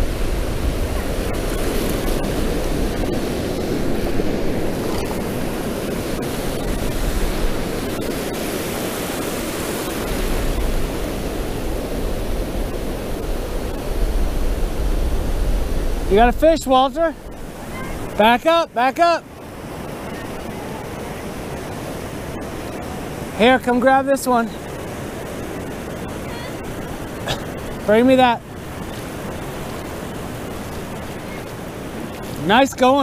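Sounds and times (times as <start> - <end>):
wind rumbling on microphone: 0.0 - 18.2
ocean surf washing onto beach: 0.0 - 33.0.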